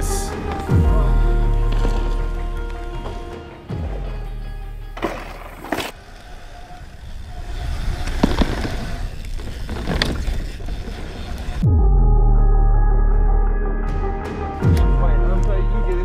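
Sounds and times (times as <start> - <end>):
bike knocks and clatters: 5.0 - 6.0
bike tyres rumbling over dirt: 5.0 - 11.6.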